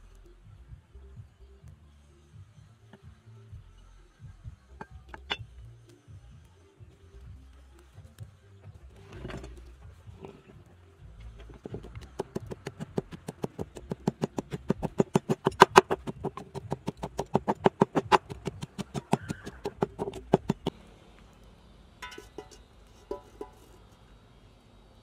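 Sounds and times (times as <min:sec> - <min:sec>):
pestle pounding in wooden mortar: 0:11.5 - 0:20.7.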